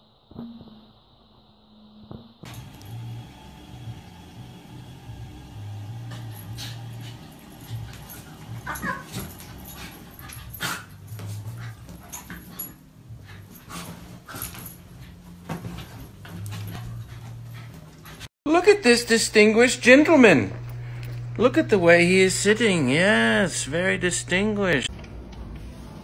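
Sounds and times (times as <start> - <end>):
animals scuffling and thumping: 5.7 - 18.3
dog whimper: 8.1 - 9.8.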